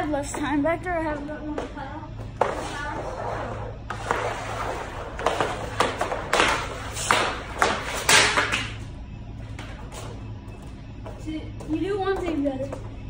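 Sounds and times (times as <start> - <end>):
hockey stick hitting puck: 3.9 - 8.8
pucks striking metal posts: 4.0 - 8.8.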